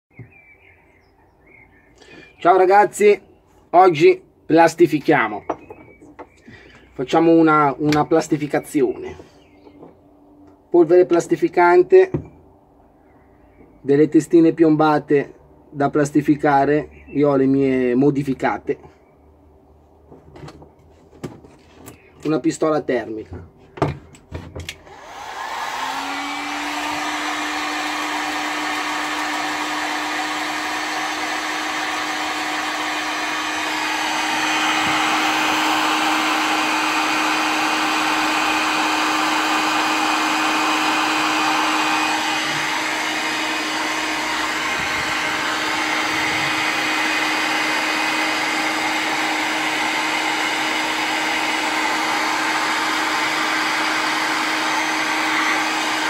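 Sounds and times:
heat gun fan humming: 24.6 - 56.0.

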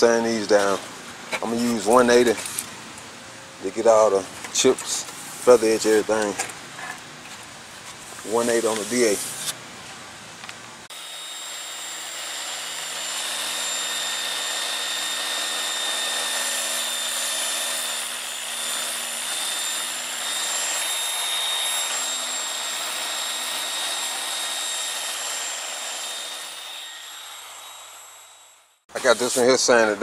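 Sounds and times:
sandpaper hissing: 8.0 - 9.6, 28.9 - 29.9
sander whining: 10.9 - 30.0.

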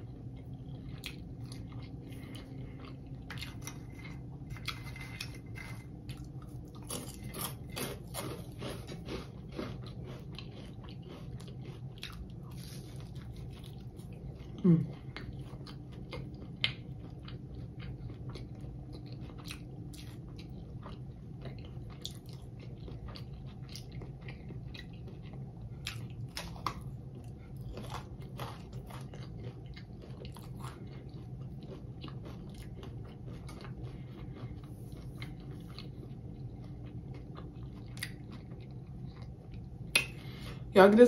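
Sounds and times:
person crunching and chewing: 0.0 - 40.7
low steady hum: 0.0 - 41.0.

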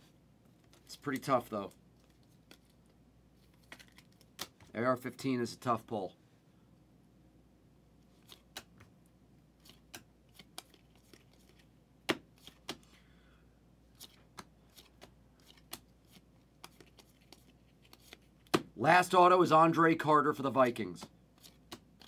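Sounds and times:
cards flipping with clicks: 0.5 - 1.4, 2.0 - 4.7, 8.1 - 8.9, 9.6 - 13.0, 13.9 - 18.7, 21.0 - 22.0.

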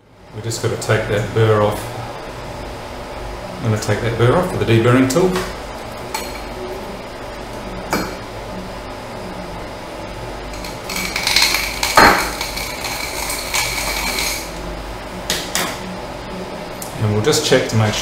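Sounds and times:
deburring tool scraping metal tube: 10.6 - 14.6.

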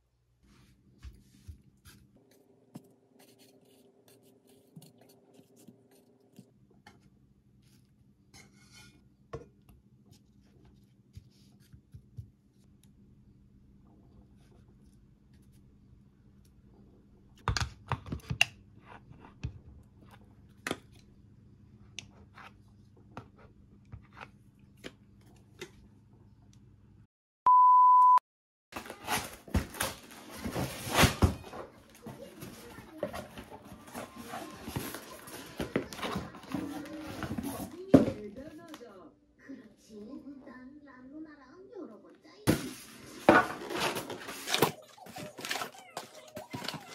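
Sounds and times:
electronic beep: 27.5 - 28.2
packing tape tearing off box: 28.8 - 31.6
cardboard rustling: 28.8 - 38.7, 42.5 - 46.9.

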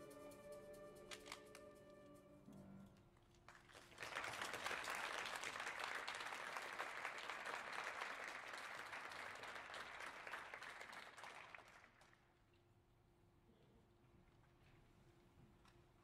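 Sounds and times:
audience applause: 3.5 - 12.2.

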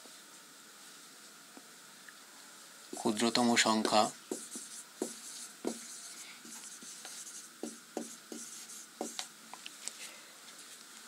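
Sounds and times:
marker tip tapping board: 3.8 - 5.9, 7.0 - 9.3
marker scratching on whiteboard: 3.8 - 9.3.

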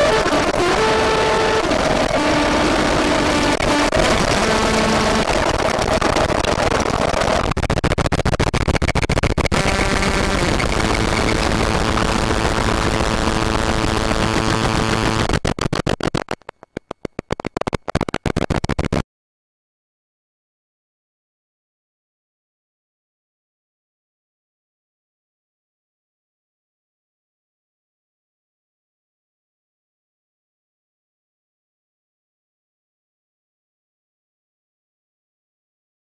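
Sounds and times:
buzzing steady tones: 0.0 - 19.0
distorted glitch noise: 0.0 - 19.0.

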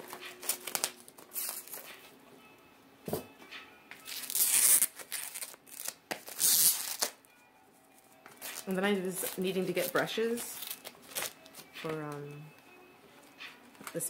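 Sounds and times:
plastic shrink-wrap rustling: 0.0 - 2.0, 4.1 - 7.2, 8.3 - 12.2.

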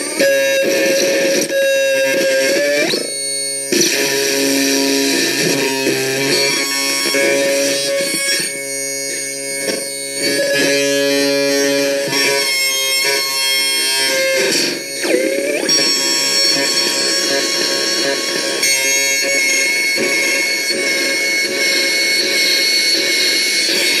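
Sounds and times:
droning synthesizer tones: 14.0 - 18.6.

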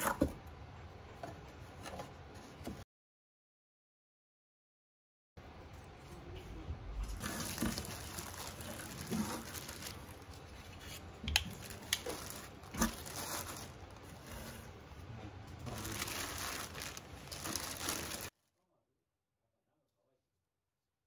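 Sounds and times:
plastic bag rustling: 7.0 - 14.9, 15.5 - 18.3
plastic and tissue crinkling: 7.0 - 18.3.

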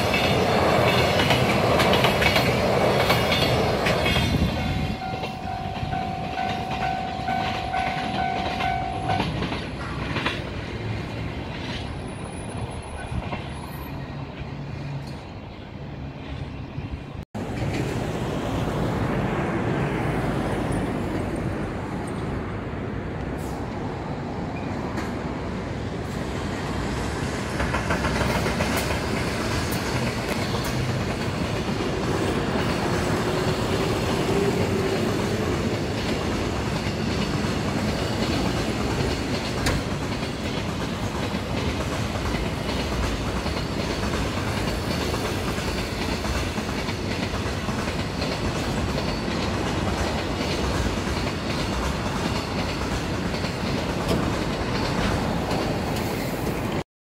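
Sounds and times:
wheels clattering over rail joints: 0.0 - 15.2, 27.2 - 56.8
freight train rumble: 0.0 - 56.8.

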